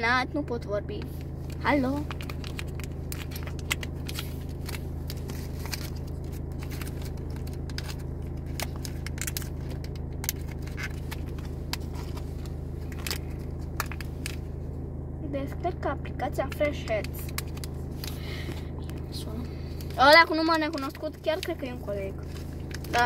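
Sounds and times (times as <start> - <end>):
car interior hum: 0.0 - 23.0
plastic packet crinkling: 1.5 - 14.4.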